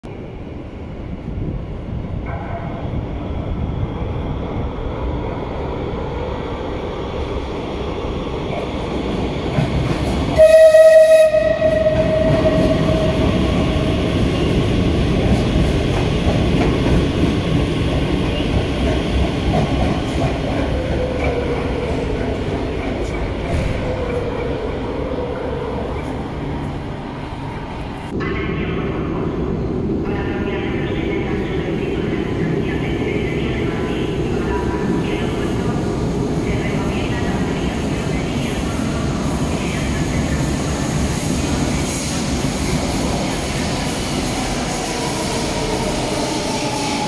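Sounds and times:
train rumbling through station: 0:00.0 - 0:47.0
train horn blast: 0:10.4 - 0:13.0.

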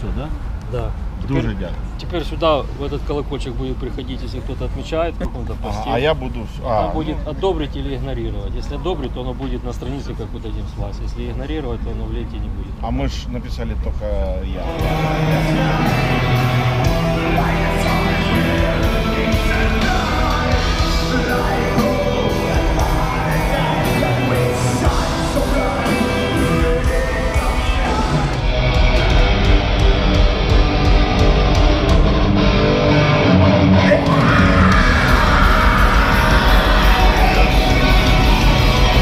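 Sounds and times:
metal band playing live: 0:14.6 - 0:39.0.

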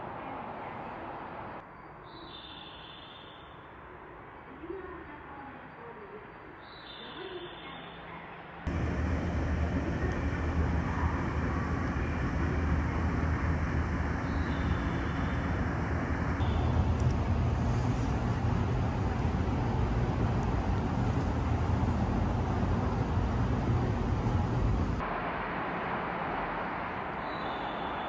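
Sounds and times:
loud steady rumble: 0:08.7 - 0:28.0
low hum: 0:08.7 - 0:28.0.

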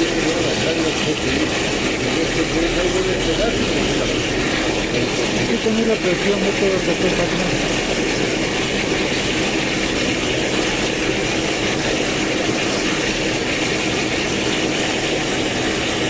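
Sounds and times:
booster pump running: 0:00.0 - 0:16.0.

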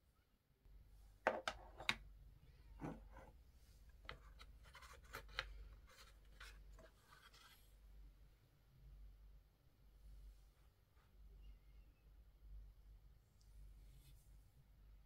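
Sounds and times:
soft rustle: 0:02.8 - 0:08.0, 0:13.3 - 0:14.7
light clicks and scrapes: 0:03.9 - 0:07.7.

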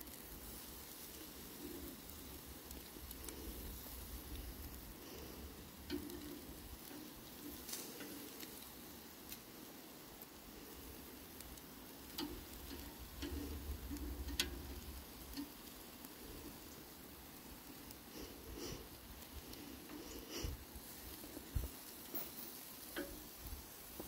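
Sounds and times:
metal tongs clicking on grill grate: 0:05.6 - 0:09.5, 0:11.4 - 0:16.2, 0:21.8 - 0:23.6.

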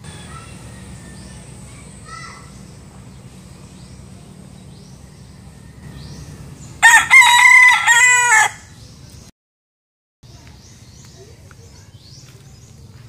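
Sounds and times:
rooster crowing: 0:06.8 - 0:08.7.

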